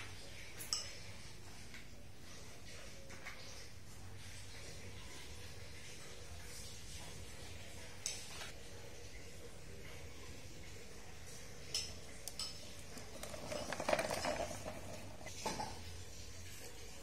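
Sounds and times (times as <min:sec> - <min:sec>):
plastic toy truck clattering: 0:13.0 - 0:15.3.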